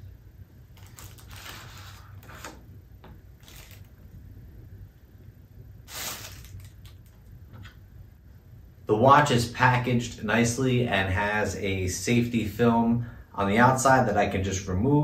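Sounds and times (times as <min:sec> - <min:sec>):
plastic wrapper rustling: 0:00.7 - 0:02.6, 0:03.4 - 0:04.0, 0:05.9 - 0:07.2
cardboard packaging scraping: 0:00.8 - 0:02.6, 0:03.4 - 0:03.9, 0:05.9 - 0:06.8.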